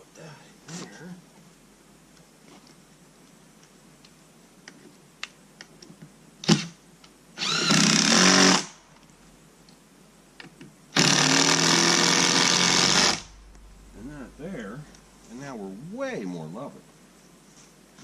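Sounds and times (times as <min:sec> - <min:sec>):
cordless drill driving screws: 0:06.4 - 0:06.7, 0:07.4 - 0:08.8, 0:11.0 - 0:13.2.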